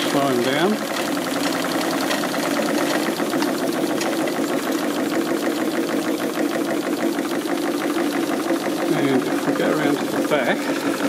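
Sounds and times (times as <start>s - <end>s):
model steam engine clattering: 0.0s - 11.0s.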